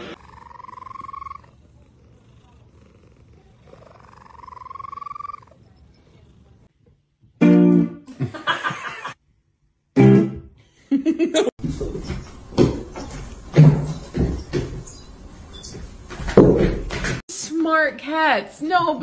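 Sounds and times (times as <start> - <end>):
loud guitar music: 7.4 - 8.1, 10.0 - 10.5.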